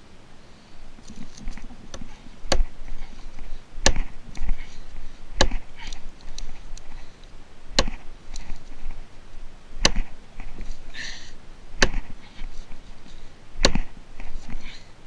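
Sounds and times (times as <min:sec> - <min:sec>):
striker knocking hatchet into wood: 0:05.4 - 0:05.6, 0:07.8 - 0:08.0, 0:09.8 - 0:10.1, 0:13.6 - 0:13.9.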